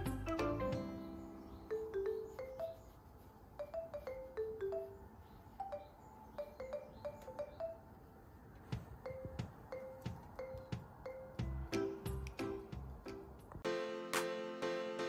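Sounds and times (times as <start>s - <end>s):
gentle music of struck notes: 0.0s - 3.0s, 8.7s - 15.0s.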